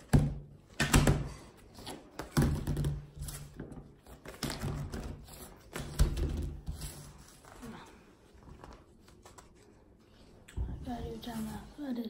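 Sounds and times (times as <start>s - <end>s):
paper plates knocking and rubbing: 0.0s - 7.4s.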